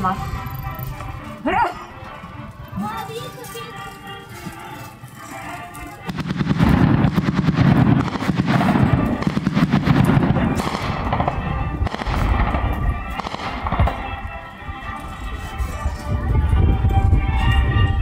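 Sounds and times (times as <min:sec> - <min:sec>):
machine-gun fire: 0:06.1 - 0:14.1.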